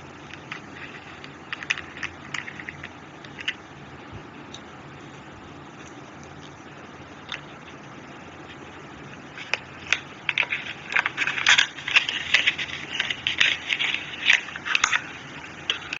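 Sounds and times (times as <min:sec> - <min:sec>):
cardboard box crinkling: 0:09.4 - 0:15.2.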